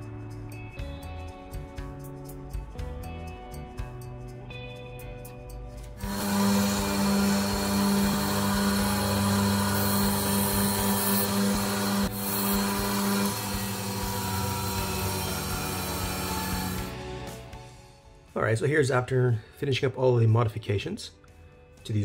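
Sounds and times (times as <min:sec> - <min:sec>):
bench grinder motor running: 0:05.9 - 0:17.5.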